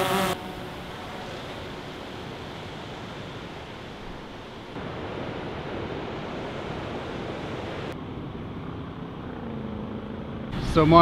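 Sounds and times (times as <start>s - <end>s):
ocean surf: 0.0s - 8.1s
wind: 0.0s - 11.0s.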